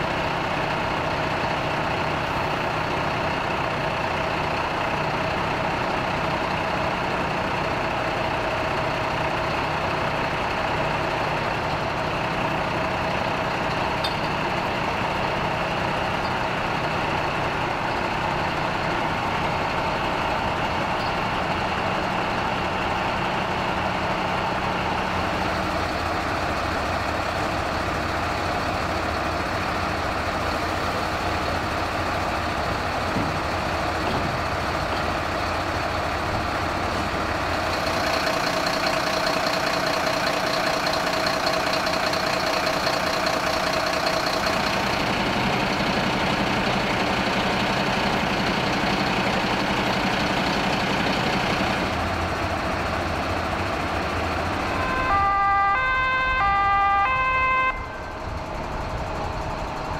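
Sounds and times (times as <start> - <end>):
fire truck engines idling: 0.0 - 59.9.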